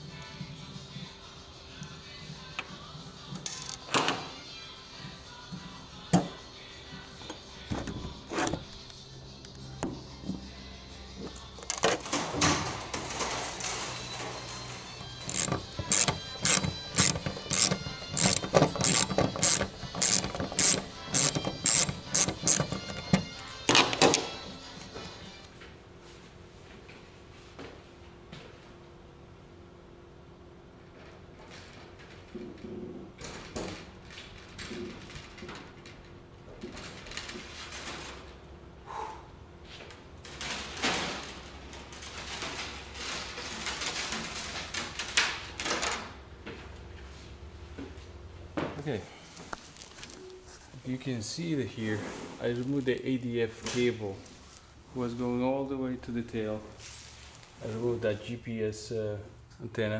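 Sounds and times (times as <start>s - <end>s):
scraping and rustling of parts: 11.6s - 24.4s, 31.4s - 38.4s, 39.8s - 46.1s, 49.4s - 50.7s
ratchet wrench clicking: 15.2s - 23.2s.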